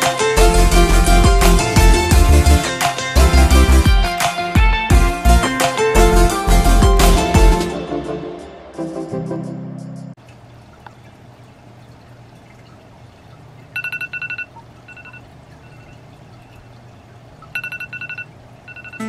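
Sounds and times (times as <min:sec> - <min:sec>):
low steady hum: 0:10.2 - 0:19.0
phone alarm beeping: 0:13.7 - 0:16.6, 0:17.5 - 0:19.0.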